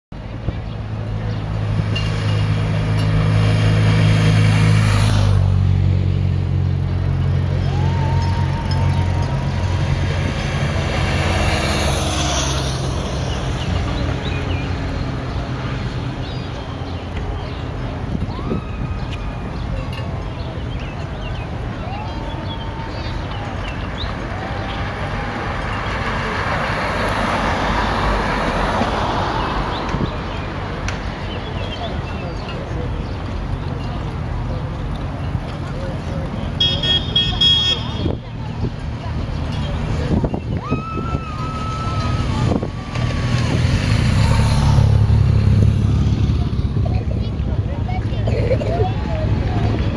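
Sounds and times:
car driving past: 7.7s - 15.0s.

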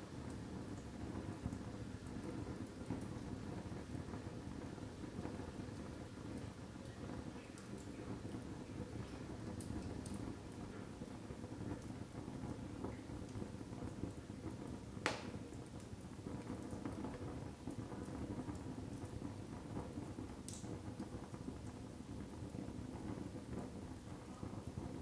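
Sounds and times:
fire burning with crackling: 0.0s - 25.0s
burning wood popping: 14.9s - 21.8s.

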